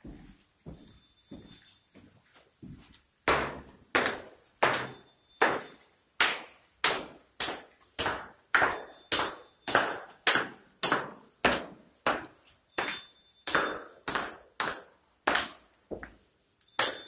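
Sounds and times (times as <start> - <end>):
footsteps on stone stairs: 0.0 - 1.5.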